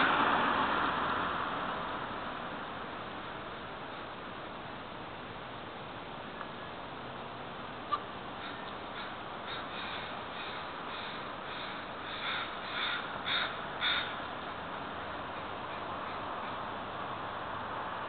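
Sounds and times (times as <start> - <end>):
steady background hiss: 0.0 - 18.0
crows cawing: 7.9 - 14.2.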